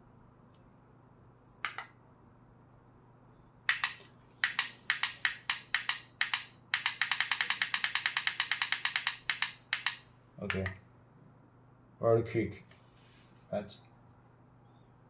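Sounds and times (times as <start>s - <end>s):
remote button clicking: 1.6s - 1.9s, 3.7s - 10.8s.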